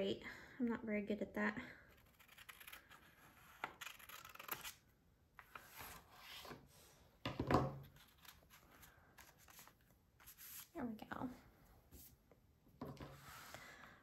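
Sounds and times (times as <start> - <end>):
scissors snipping paper: 2.0 - 4.8.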